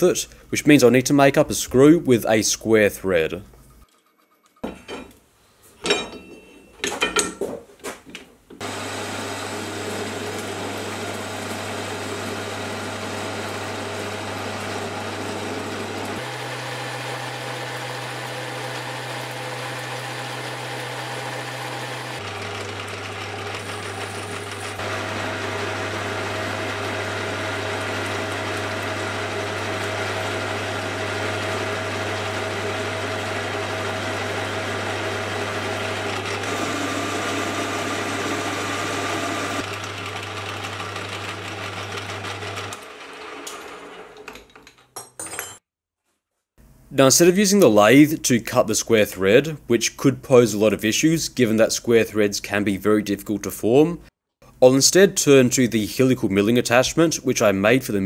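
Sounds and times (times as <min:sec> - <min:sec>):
metallic knocks and clanks: 0:05.8 - 0:08.3
lathe tool cutting metal bar: 0:08.6 - 0:44.3
metal lathe motor hum: 0:08.6 - 0:44.3.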